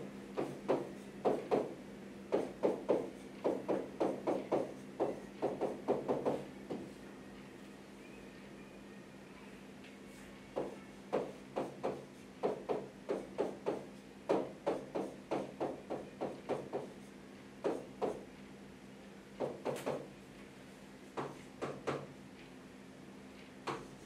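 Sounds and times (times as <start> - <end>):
low electrical hum: 0.0 - 24.0.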